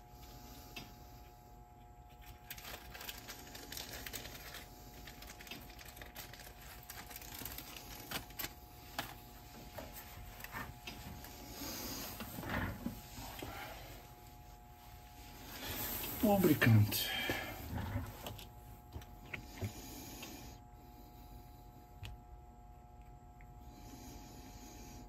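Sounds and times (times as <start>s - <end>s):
small parts clicking and rustling: 2.1s - 9.2s.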